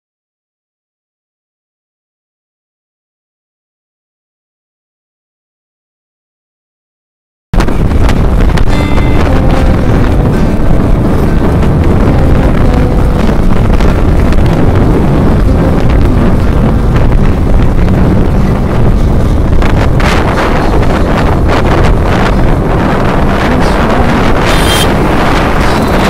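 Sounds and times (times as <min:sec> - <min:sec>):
wind rushing over microphone: 0:07.6 - 0:26.0
motorcycle engine running: 0:07.8 - 0:26.0.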